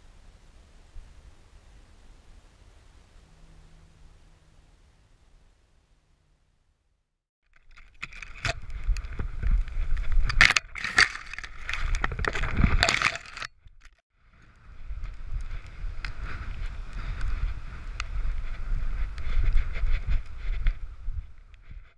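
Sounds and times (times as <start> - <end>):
wind buffeting microphone: 14.4 - 21.9.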